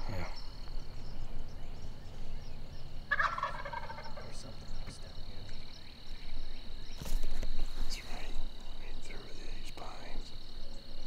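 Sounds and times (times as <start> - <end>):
turkey gobbling: 3.1 - 4.5.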